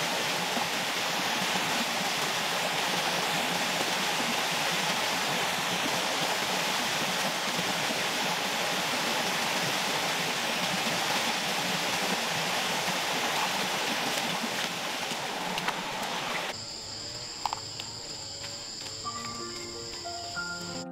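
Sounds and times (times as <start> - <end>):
stream and small waterfall: 0.0 - 20.9
insects droning: 14.3 - 20.9.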